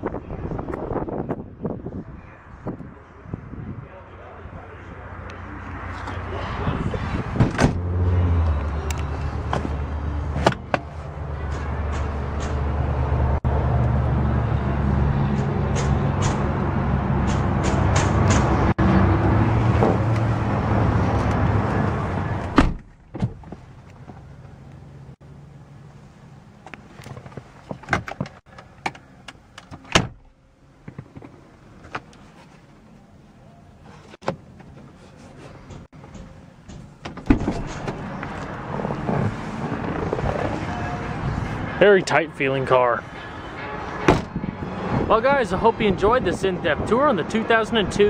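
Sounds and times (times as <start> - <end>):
clicks and knocks of interior parts: 26.6 - 32.2.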